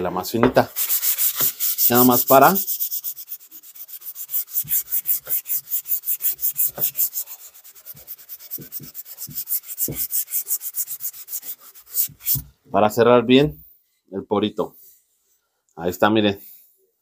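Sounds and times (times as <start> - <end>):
sanding sponge rasping on wood: 0.7 - 12.5.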